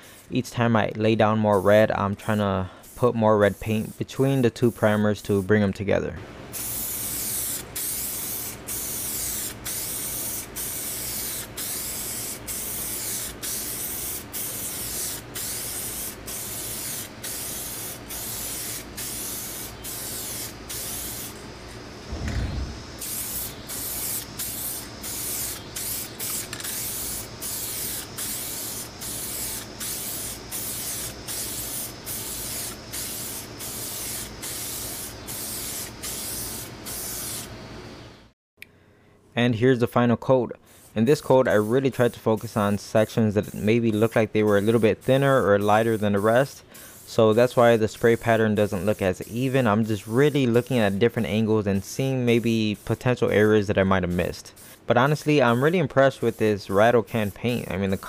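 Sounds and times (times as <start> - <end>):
aerosol spray can hissing: 6.5 - 21.4, 22.1 - 37.5, 43.4 - 51.0
low thump: 22.1 - 23.0.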